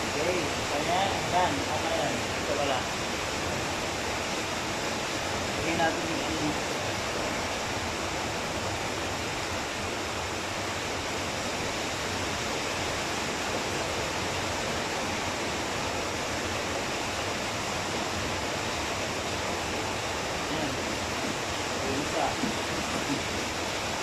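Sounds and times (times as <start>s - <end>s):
steady hiss: 0.0s - 24.0s.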